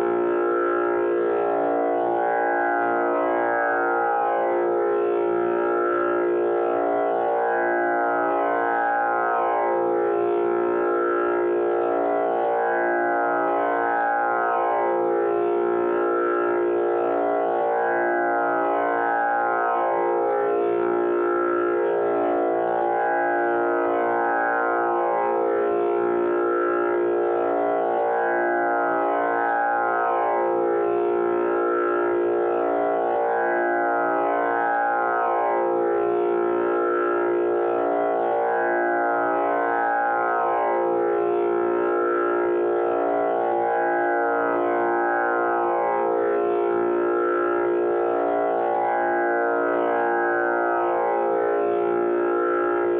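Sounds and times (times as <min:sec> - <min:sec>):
tanpura drone: 0:00.0 - 0:52.9.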